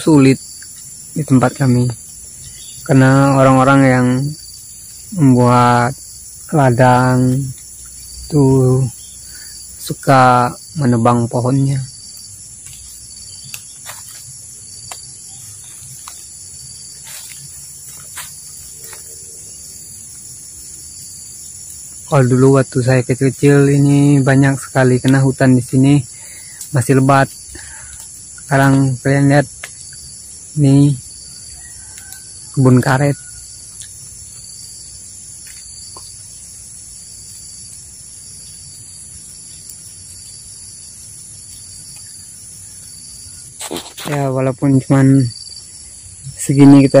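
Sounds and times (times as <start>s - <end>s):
insects chirring drone: 0.0s - 47.0s
faint clicks: 12.1s - 14.2s.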